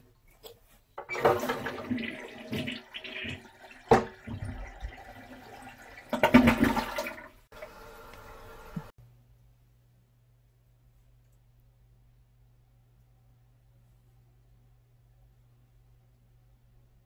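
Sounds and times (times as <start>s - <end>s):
toilet flushing: 1.0s - 8.9s.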